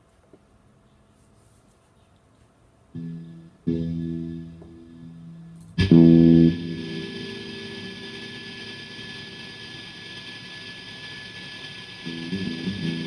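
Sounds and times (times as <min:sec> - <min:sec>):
steady hiss: 0:00.0 - 0:13.0
guitar strummed chord: 0:03.0 - 0:13.0.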